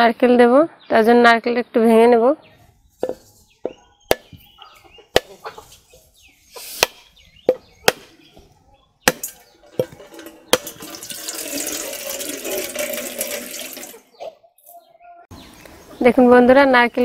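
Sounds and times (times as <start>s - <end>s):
blade knocking on coconut: 4.1s - 4.4s
water splashing into steel bowl: 9.8s - 14.0s.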